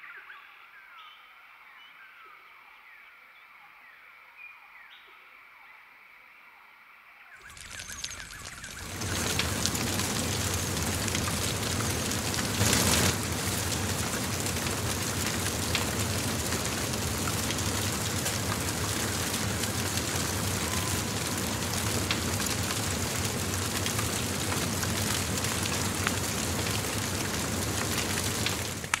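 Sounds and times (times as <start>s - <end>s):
fire crackling: 7.4s - 29.0s.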